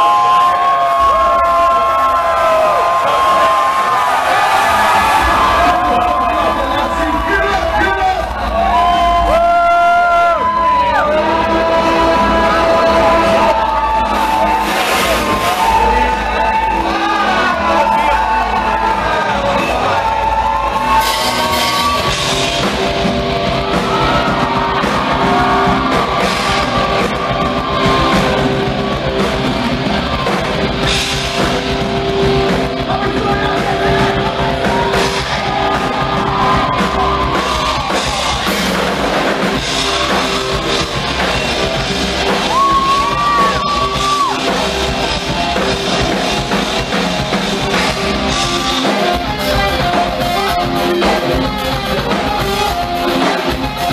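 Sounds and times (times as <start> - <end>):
drum kit: 0.0 - 53.9
electric guitar: 0.0 - 53.9
person singing: 9.9 - 21.8, 32.4 - 38.0.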